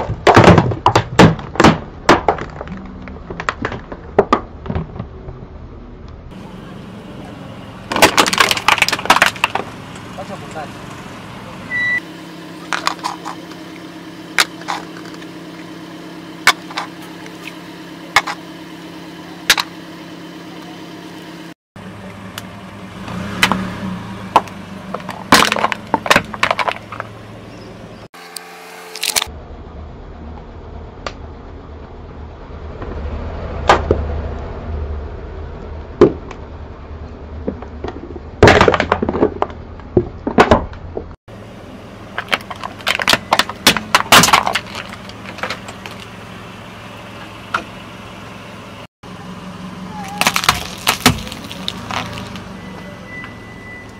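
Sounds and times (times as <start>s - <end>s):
plastic bowls cracking under tyre: 0.0s - 5.0s, 7.9s - 10.1s, 12.7s - 13.4s, 24.3s - 27.1s, 37.5s - 41.1s, 42.2s - 46.1s, 50.1s - 52.4s
low engine hum: 0.0s - 53.9s.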